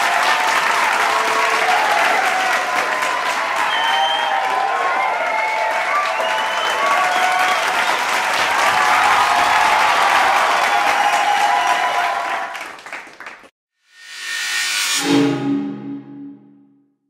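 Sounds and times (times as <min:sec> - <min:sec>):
crowd applauding: 0:00.0 - 0:13.5.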